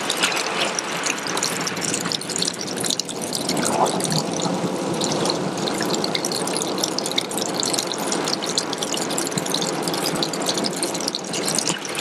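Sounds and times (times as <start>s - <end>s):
water drips: 0.0s - 12.0s
water trickling and splashing: 0.0s - 12.0s.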